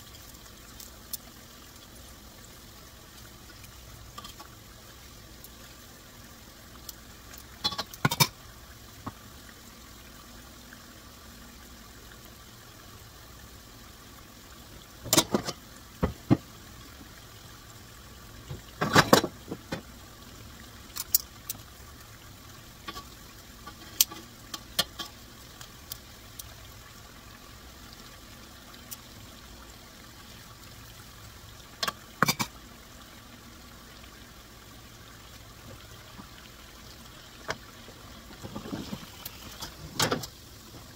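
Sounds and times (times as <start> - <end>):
food frying in hot oil: 0.0 - 40.9
oil popping: 6.8 - 8.4, 37.4 - 40.9.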